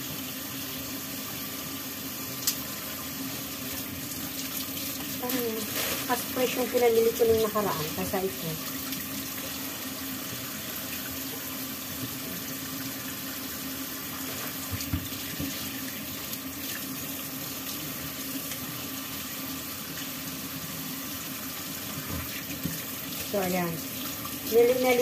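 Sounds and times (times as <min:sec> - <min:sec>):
fish being rinsed by hand: 0:00.0 - 0:25.0
tap running into metal sink: 0:14.5 - 0:15.7, 0:21.9 - 0:22.9.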